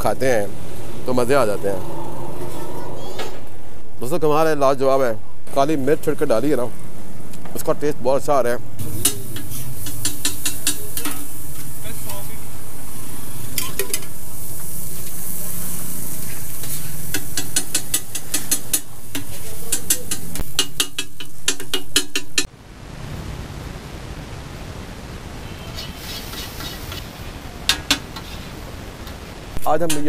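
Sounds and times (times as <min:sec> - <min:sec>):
food sizzling: 0:00.0 - 0:04.0, 0:08.7 - 0:22.5, 0:25.5 - 0:30.0
metal spatula clacking on griddle: 0:08.9 - 0:11.3, 0:16.2 - 0:22.5, 0:27.7 - 0:28.4, 0:29.8 - 0:30.0.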